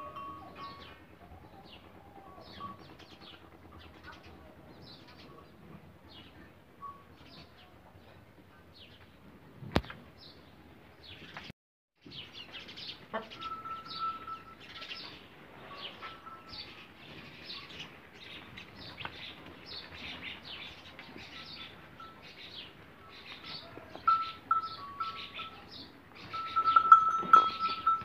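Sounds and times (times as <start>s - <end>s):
small birds chirping: 9.8s - 28.0s.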